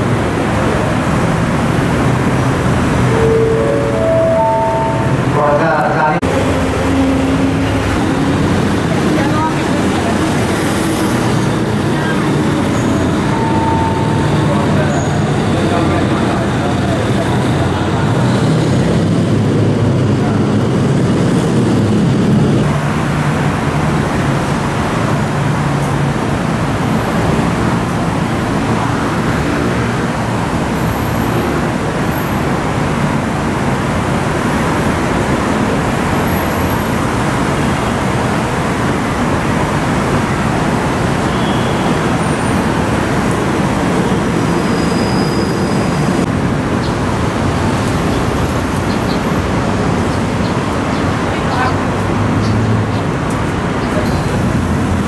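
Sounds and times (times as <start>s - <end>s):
locomotive engine droning: 0.0s - 29.2s
passing train rumble: 0.0s - 55.0s
road traffic: 0.0s - 55.0s.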